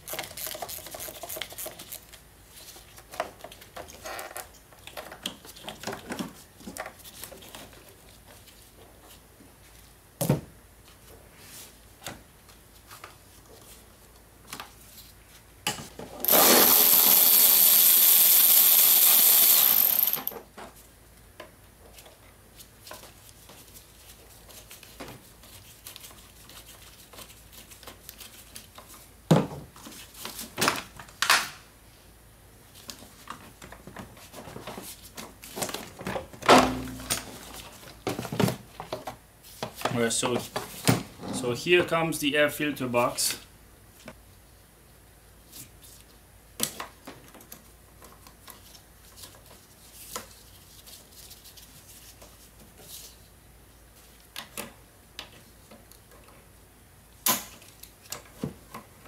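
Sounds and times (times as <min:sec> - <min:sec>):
power tool running: 0:16.2 - 0:20.4.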